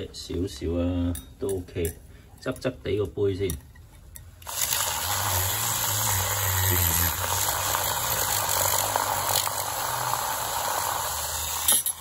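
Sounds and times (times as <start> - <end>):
milk frother whirring: 4.4 - 12.0.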